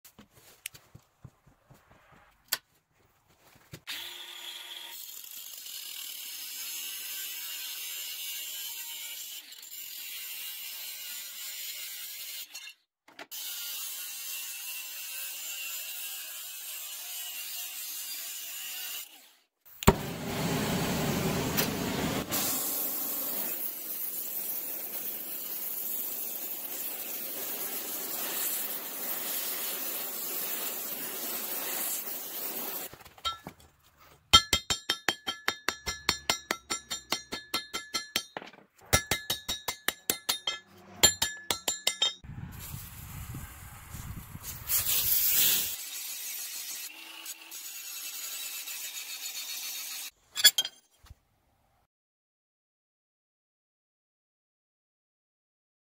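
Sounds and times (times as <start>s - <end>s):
angle grinder cutting steel: 3.9s - 12.7s, 13.3s - 19.4s, 22.4s - 33.5s, 34.3s - 42.2s, 44.8s - 50.7s
torch lighting with a pop: 19.8s - 23.4s
torch flame rushing: 19.8s - 23.6s
hammer striking hot metal: 33.2s - 33.5s, 34.3s - 42.2s.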